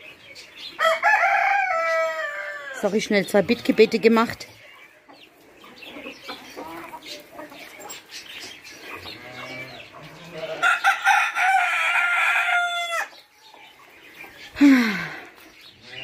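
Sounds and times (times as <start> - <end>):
chickens clucking: 0.0 - 16.0
rooster crowing: 0.8 - 2.8, 10.6 - 13.1.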